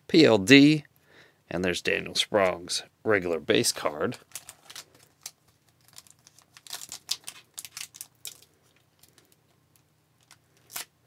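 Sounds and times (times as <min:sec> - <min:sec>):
foil card pack rustling: 0:03.7 - 0:09.4
foil wrapper tearing: 0:04.2 - 0:09.3, 0:10.2 - 0:10.9.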